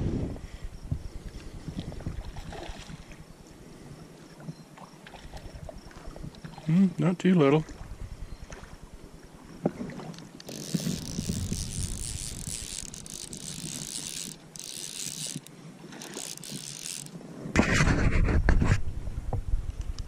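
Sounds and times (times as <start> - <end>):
fishing reel drag ratcheting: 10.3 - 17.2.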